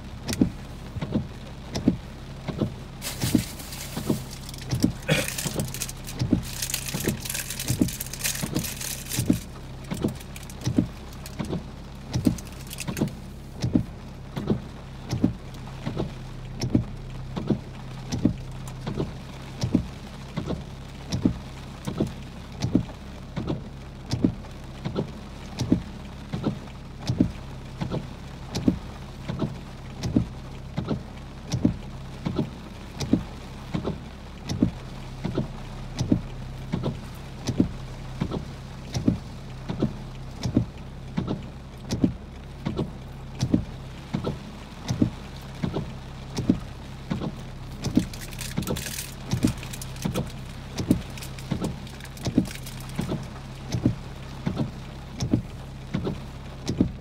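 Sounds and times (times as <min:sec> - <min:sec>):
car engine idling: 0:00.0 - 0:15.7, 0:34.2 - 0:57.0
rain hiss: 0:00.0 - 0:57.0.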